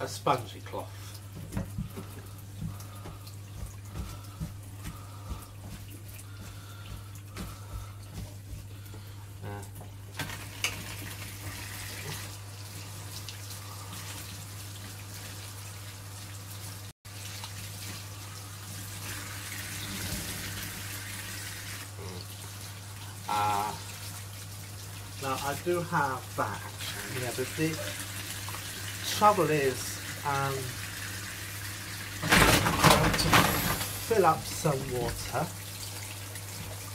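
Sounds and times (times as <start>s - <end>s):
tap water running into sink: 1.0s - 36.9s.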